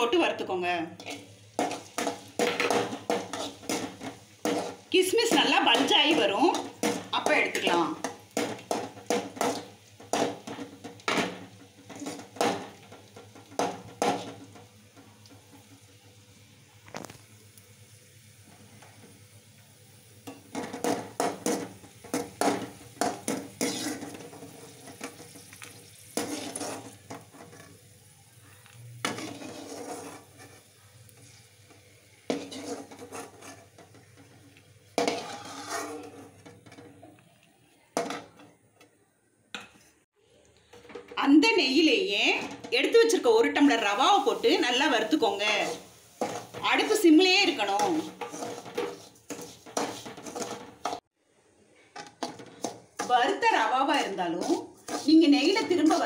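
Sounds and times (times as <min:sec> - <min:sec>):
ghee sizzling: 0:00.0 - 0:56.0
metal ladle scraping a pan: 0:01.0 - 0:15.7, 0:20.2 - 0:28.0, 0:28.9 - 0:38.6, 0:43.9 - 0:51.1, 0:52.0 - 0:56.0.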